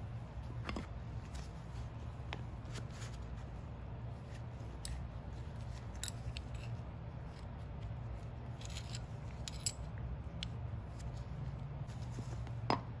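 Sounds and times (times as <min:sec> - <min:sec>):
steel parts clicking and scraping: 0:05.7 - 0:07.5, 0:08.4 - 0:11.1.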